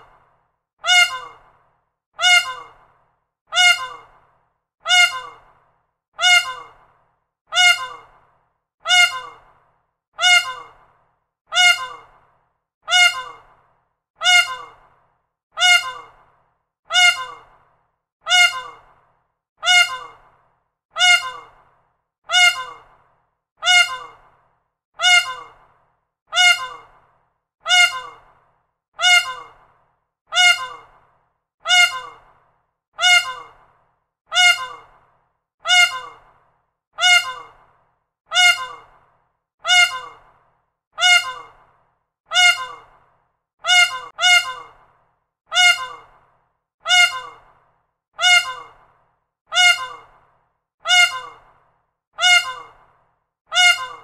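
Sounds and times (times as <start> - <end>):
peacock calling: 0.8 - 1.4, 2.2 - 2.8, 3.5 - 4.1, 4.9 - 5.5, 6.2 - 6.8, 7.5 - 8.1, 8.9 - 9.4, 10.2 - 10.8, 11.5 - 12.1, 12.9 - 13.5, 14.2 - 14.8, 15.6 - 16.2, 16.9 - 17.5, 18.3 - 18.8, 19.6 - 20.2, 21.0 - 21.6, 22.3 - 22.9, 23.6 - 24.2, 25.0 - 25.6, 26.3 - 26.9, 27.7 - 28.3, 29.0 - 29.6, 30.3 - 30.9, 31.7 - 32.3, 33.0 - 33.6, 34.3 - 34.9, 35.7 - 36.2, 37.0 - 37.6, 38.3 - 38.9, 39.7 - 40.2, 41.0 - 41.6, 42.3 - 42.9, 43.6 - 44.8, 45.5 - 46.1, 46.9 - 47.5, 48.2 - 48.8, 49.5 - 50.1, 50.9 - 51.4, 52.2 - 52.8, 53.5 - 54.0.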